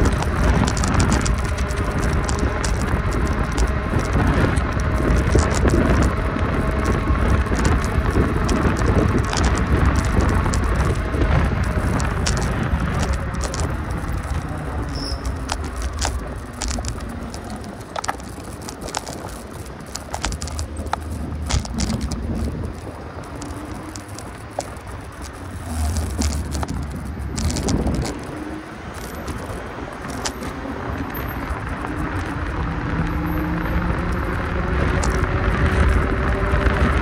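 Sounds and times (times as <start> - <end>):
rattles and clicks: 0.0 - 37.0
road noise: 0.0 - 37.0
wind rumble on microphone: 0.0 - 37.0.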